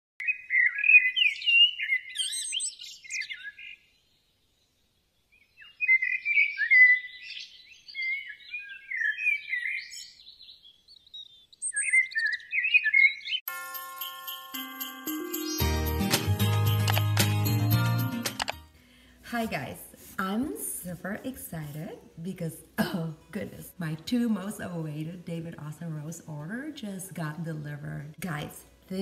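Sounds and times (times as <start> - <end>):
songbirds chirping and warbling: 0.2 - 13.4.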